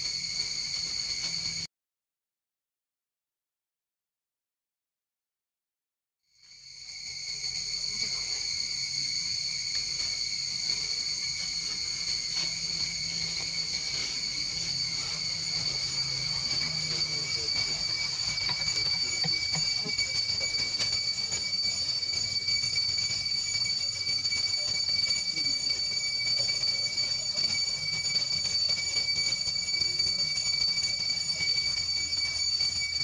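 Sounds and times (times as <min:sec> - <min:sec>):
high-pitched insect drone: 0:00.0 - 0:01.7, 0:06.4 - 0:33.0.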